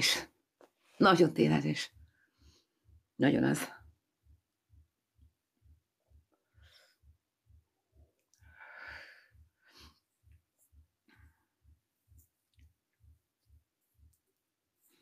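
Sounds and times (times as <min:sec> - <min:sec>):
faint breath: 0:08.4 - 0:10.2.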